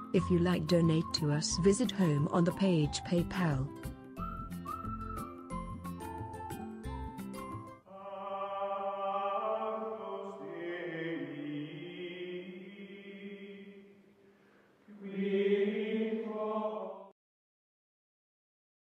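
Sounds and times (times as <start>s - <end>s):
chanted choral voices: 7.9s - 14.0s, 14.9s - 17.1s.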